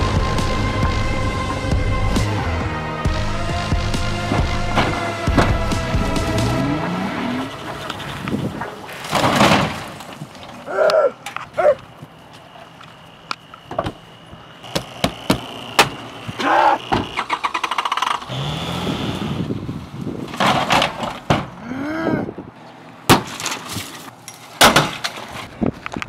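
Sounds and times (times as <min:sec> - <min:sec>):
bangs and crashes on van body: 0:03.8 - 0:06.6, 0:08.5 - 0:10.5, 0:20.2 - 0:21.6, 0:23.1 - 0:25.4
breaking sounds: 0:08.9 - 0:10.6.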